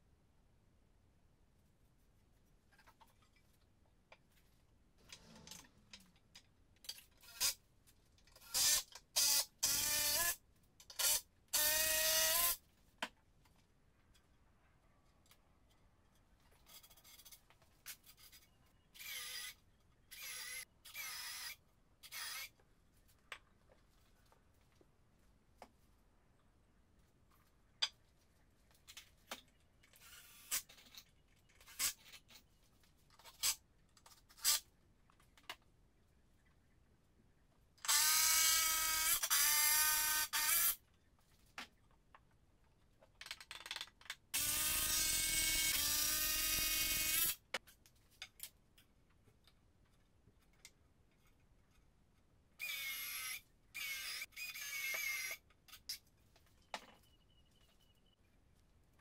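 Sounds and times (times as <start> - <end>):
electric drill whining: 19.0 - 22.5, 44.4 - 47.4, 52.6 - 55.4.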